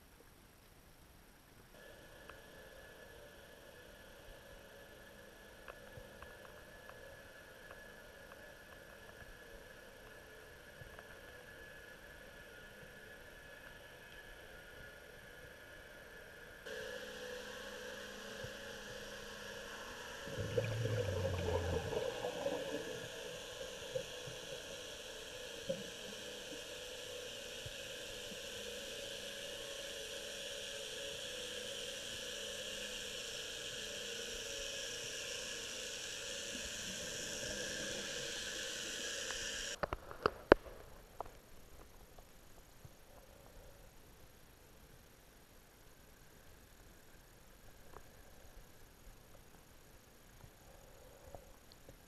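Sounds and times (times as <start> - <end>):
underwater watery hiss: 16.7 - 39.9.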